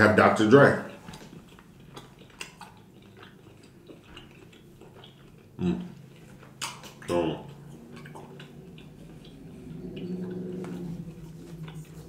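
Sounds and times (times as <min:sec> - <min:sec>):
mouth clicks and lip smacks: 0:06.2 - 0:10.8.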